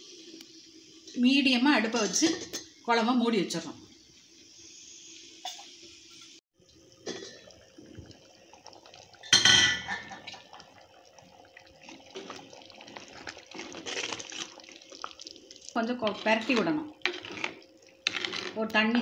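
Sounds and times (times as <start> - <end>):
curry bubbling: 6.6 - 19.0
ladle stirring and scraping: 11.8 - 19.0.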